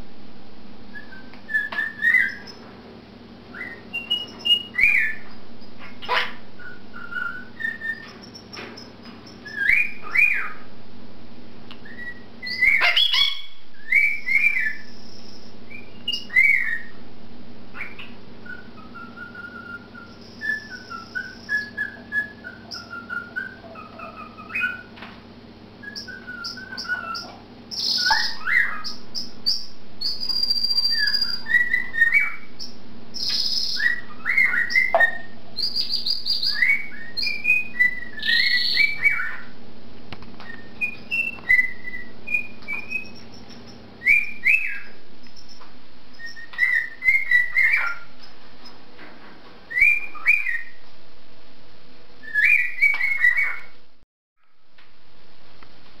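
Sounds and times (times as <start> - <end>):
cockatiel whistling: 0.9 - 2.6, 3.5 - 10.6, 11.8 - 17.0, 17.8 - 25.0, 25.8 - 39.5, 40.4 - 45.6, 46.2 - 48.1, 49.7 - 50.8, 52.2 - 53.7
canary trills and chirps: 0.9 - 2.7, 3.5 - 10.7, 11.8 - 17.0, 17.7 - 25.1, 25.8 - 39.6, 40.4 - 48.8, 49.7 - 50.8, 52.2 - 53.8.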